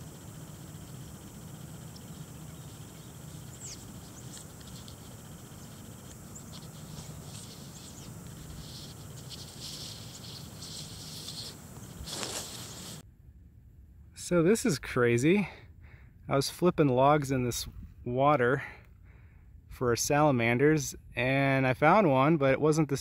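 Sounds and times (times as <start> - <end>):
high-pitched insect drone: 0.0 - 13.0
bird chirps: 1.8 - 13.0
scratchy rustling: 3.6 - 13.0.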